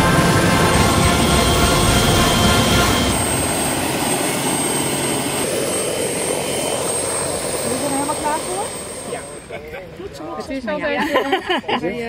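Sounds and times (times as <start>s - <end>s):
faint high whine: 0.0s - 9.6s
helicopter engine and rotor: 0.0s - 10.3s.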